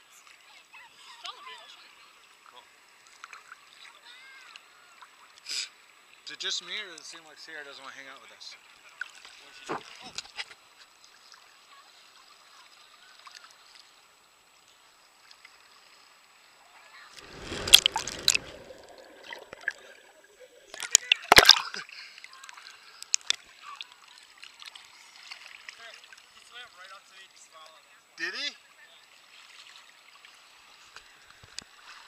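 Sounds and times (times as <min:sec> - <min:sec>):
seawater sloshing and splashing: 0:17.2 - 0:20.2.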